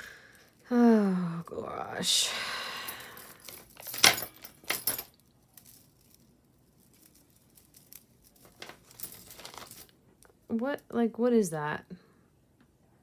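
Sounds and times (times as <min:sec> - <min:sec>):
rustling: 0:03.2 - 0:10.3.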